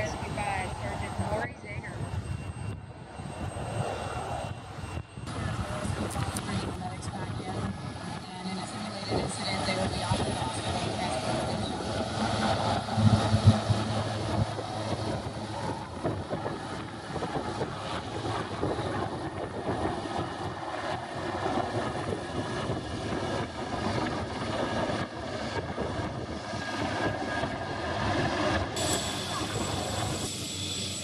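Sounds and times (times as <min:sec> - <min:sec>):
helicopter flying past: 0:00.0 - 0:31.0
low rotor thumps: 0:05.8 - 0:20.6.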